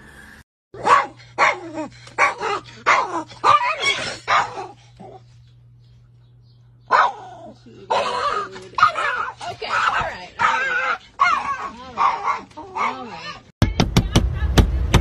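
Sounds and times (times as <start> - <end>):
small dog barking: 0.8 - 5.2, 6.9 - 13.4.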